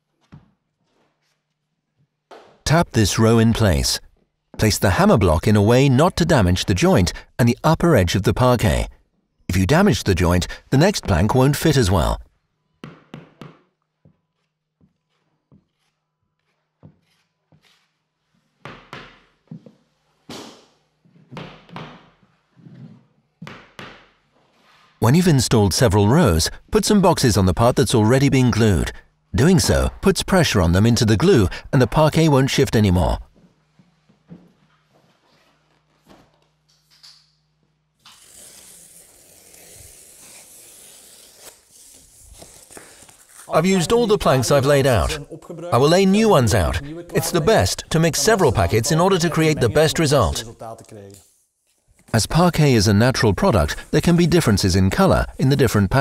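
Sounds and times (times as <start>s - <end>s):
knife tearing cardboard: 38.1s - 43.5s.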